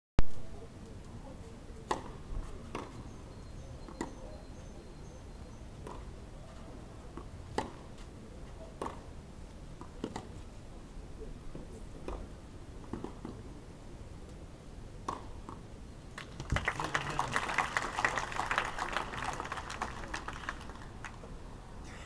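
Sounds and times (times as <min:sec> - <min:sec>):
faint steady background noise: 0:00.2 - 0:22.0
tennis balls struck with rackets: 0:01.8 - 0:03.0, 0:05.8 - 0:06.1, 0:07.2 - 0:07.9, 0:08.8 - 0:09.1, 0:09.8 - 0:10.3, 0:12.0 - 0:13.4, 0:15.0 - 0:15.6.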